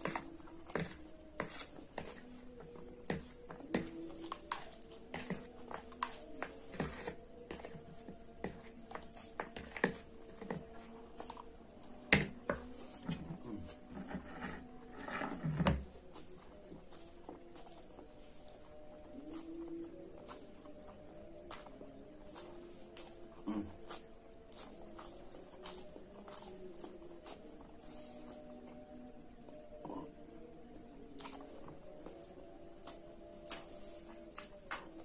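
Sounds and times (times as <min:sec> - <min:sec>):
chewing and slurping noodles: 0:00.0 - 0:08.2, 0:15.9 - 0:28.5
fork scraping on plastic plate: 0:13.9 - 0:15.8.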